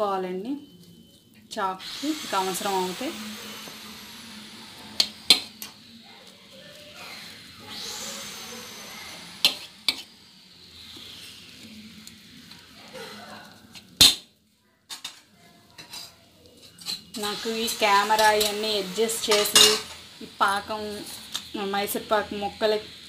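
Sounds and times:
knife scraping: 8.9s - 10.2s
blade clinking on steel plate: 19.3s - 20.0s.

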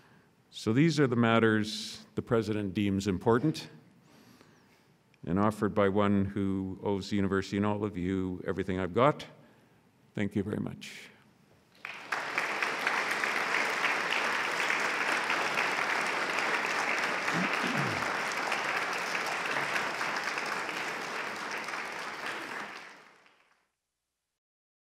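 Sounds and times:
audience applauding: 11.8s - 23.6s.

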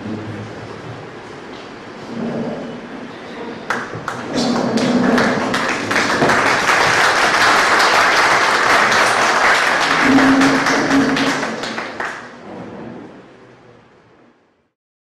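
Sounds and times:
audience applauding: 3.7s - 12.5s.

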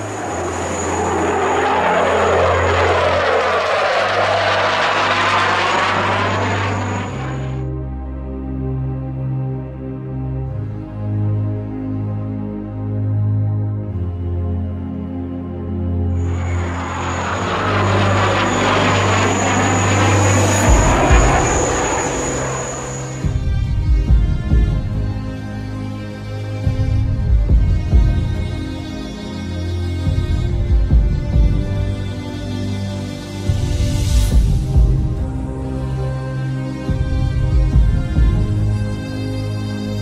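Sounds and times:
thin high whine: 0.0s - 7.6s, 16.2s - 23.4s
jet engine roaring past: 0.0s - 7.7s, 16.1s - 23.6s.

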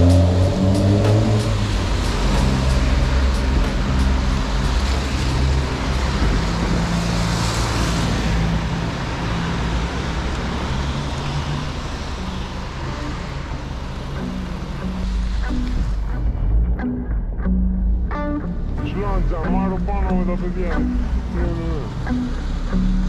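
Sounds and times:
car tyres hissing on wet road: 0.0s - 16.1s
low bass line of beat music: 0.0s - 23.0s.

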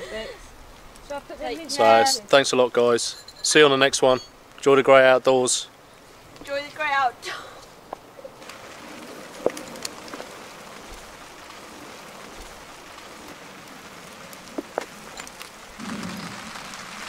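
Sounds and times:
campfire crackles: 0.0s - 17.0s.

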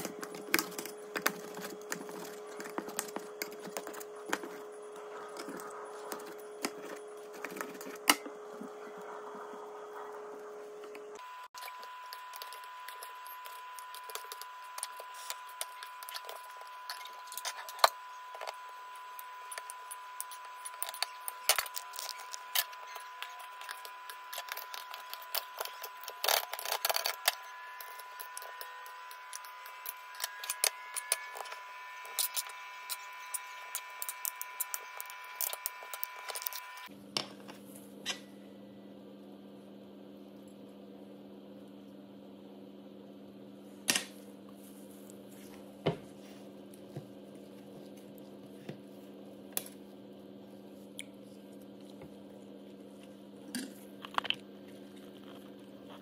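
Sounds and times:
steady thin whine: 0.0s - 38.9s.

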